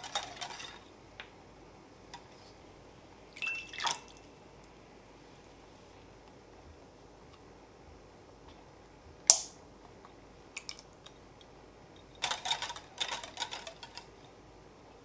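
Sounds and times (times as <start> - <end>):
whisk clinking against glass bowl: 3.4 - 4.3.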